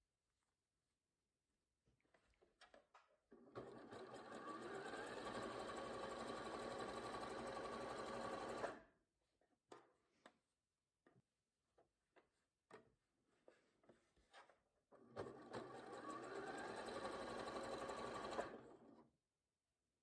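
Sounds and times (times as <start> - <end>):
sewing machine running: 3.4 - 8.8, 15.2 - 19.0.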